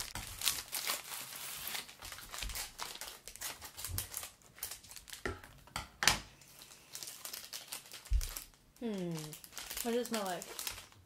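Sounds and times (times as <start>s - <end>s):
packaging crinkling and rustling: 0.0s - 5.7s, 6.3s - 11.0s.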